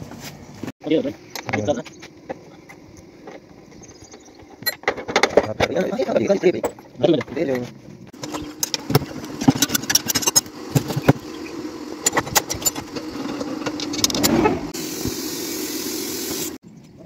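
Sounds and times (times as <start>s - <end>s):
steady motor hum: 7.9s - 16.6s
air hissing: 10.4s - 16.6s.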